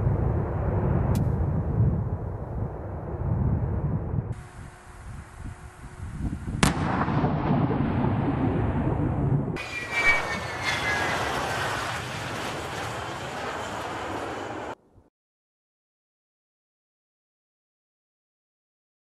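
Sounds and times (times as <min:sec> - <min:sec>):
jet engines roaring: 0:04.4 - 0:14.8
explosion blast: 0:06.6 - 0:13.9.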